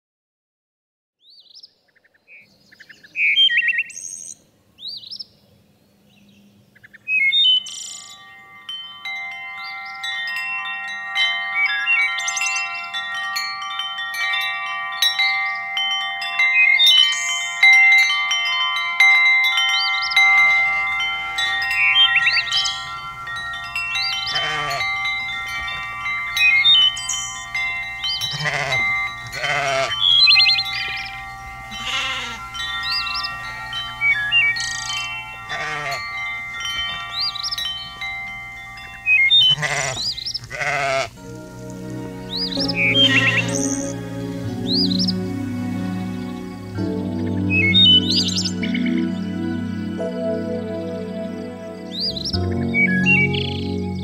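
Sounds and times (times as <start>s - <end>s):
sustained chime-like chord: 7.6s - 54.0s
sheep bleating: 24.3s - 24.9s, 28.2s - 30.2s, 31.6s - 32.5s, 35.5s - 36.0s, 39.4s - 41.2s.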